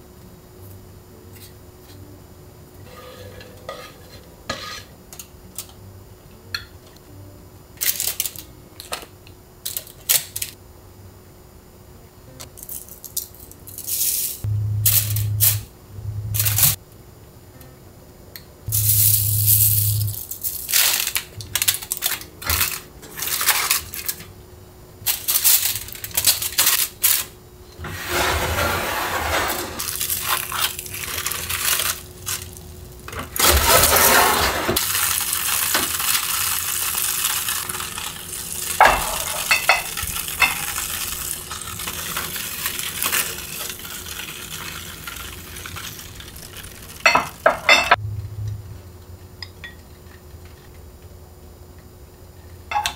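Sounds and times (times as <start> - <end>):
seasoning shaker shaking: 12.6 - 15.6, 18.7 - 24.2, 25.1 - 27.3, 29.8 - 32.7, 34.8 - 47.5
food sizzling: 18.7 - 24.2, 27.9 - 48.0
grill drawer sliding: 27.8 - 29.9, 33.4 - 34.8.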